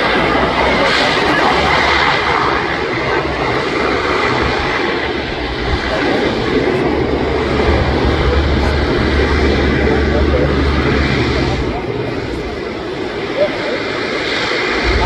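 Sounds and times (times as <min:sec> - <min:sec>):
propeller aircraft flying by: 0:00.0 - 0:15.0
low hum: 0:14.6 - 0:15.0.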